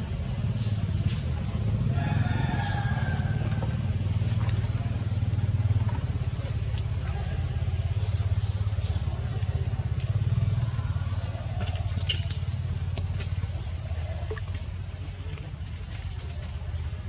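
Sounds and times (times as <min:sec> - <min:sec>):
engine humming at low speed: 0:00.0 - 0:17.0.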